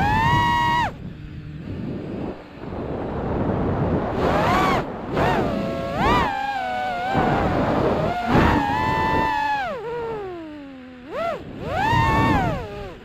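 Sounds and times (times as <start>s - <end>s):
rushing wind noise: 0.0s - 9.7s
drone motors whining: 0.0s - 13.0s.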